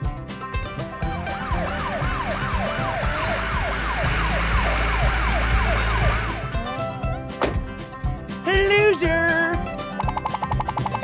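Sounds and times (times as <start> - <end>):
background music: 0.0 - 11.0
police siren yelp: 1.3 - 6.7.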